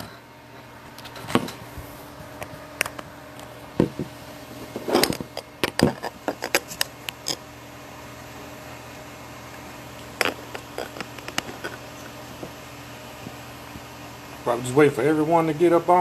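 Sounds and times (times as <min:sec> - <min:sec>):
phone handling knocks and rubbing: 0:10.2 - 0:11.8.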